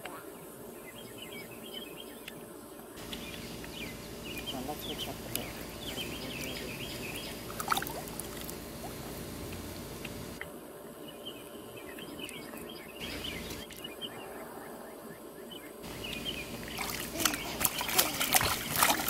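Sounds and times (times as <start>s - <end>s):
birds chirping: 0.0s - 19.0s
steady low rumble: 3.0s - 10.5s, 15.8s - 19.0s
brief clicks or small splashes: 16.8s - 19.0s.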